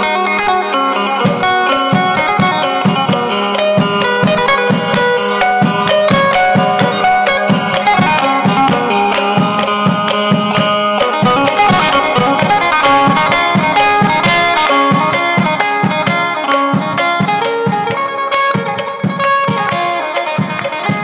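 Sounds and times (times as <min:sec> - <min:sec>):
plucked lute melody: 0:00.0 - 0:21.0
steady drum beat: 0:01.2 - 0:21.0
held drone note: 0:01.3 - 0:18.0.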